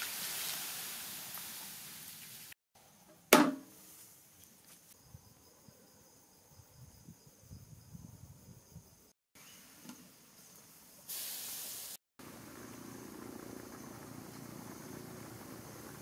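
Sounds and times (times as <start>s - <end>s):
stew simmering with a hiss: 0.0s - 2.6s, 11.0s - 16.0s
loud sharp knock: 3.3s - 3.7s
faint insect drone: 4.0s - 11.1s, 12.2s - 16.0s
wood fire rumbling and crackling: 12.2s - 16.0s.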